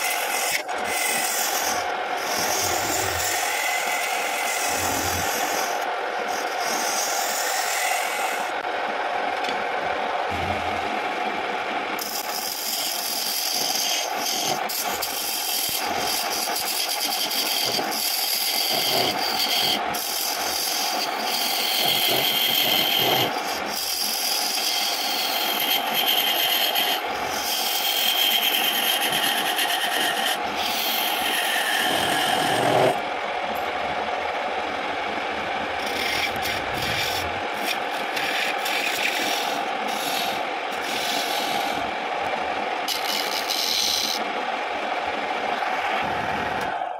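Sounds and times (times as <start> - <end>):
chisel scraping spinning wood: 0.0 - 8.7, 12.0 - 33.7, 35.7 - 44.3
wood lathe running: 0.0 - 8.7, 12.0 - 34.4, 35.0 - 44.4.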